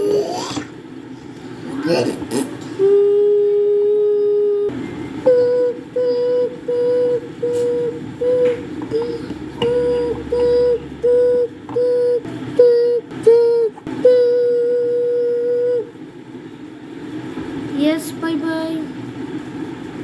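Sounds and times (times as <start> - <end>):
person humming beeps: 1.8 - 15.9.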